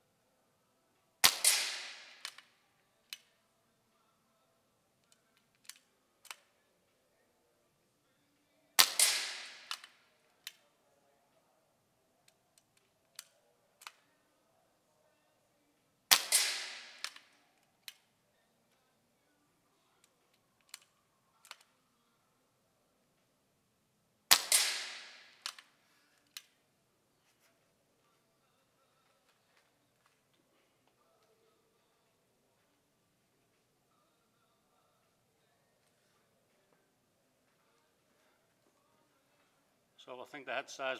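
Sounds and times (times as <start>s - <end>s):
air rifle shots: 1.2s - 2.4s, 8.8s - 9.9s, 16.1s - 17.2s, 24.3s - 25.6s.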